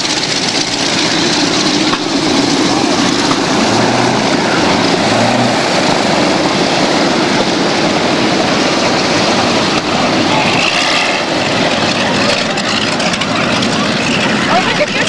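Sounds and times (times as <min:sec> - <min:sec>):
propeller airplane engine running: 0:00.0 - 0:15.0.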